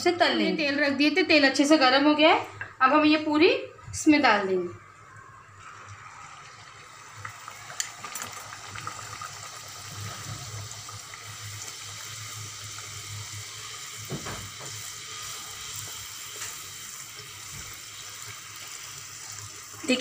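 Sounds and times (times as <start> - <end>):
food deep-frying in hot oil: 4.8 - 20.0.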